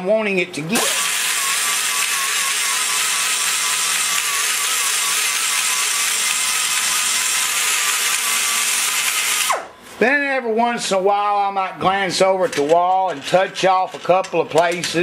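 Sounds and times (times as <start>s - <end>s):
die grinder cutting metal: 0.7s - 9.6s.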